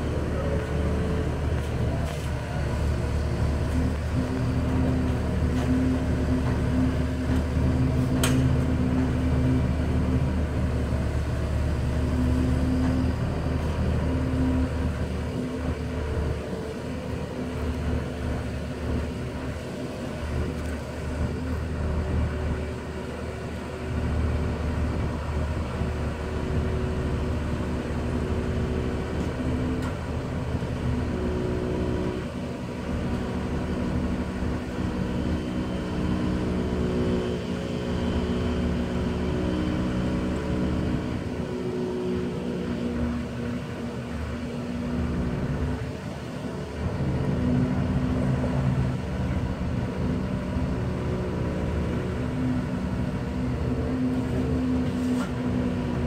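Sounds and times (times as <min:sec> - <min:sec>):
tow tractor engine running: 0:00.0 - 0:56.0.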